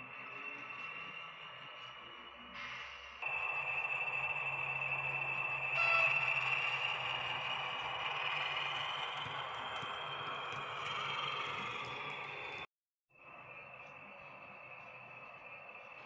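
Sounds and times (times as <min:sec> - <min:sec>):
model train motor whine: 0:03.2 - 0:12.6
low hum: 0:03.2 - 0:16.0.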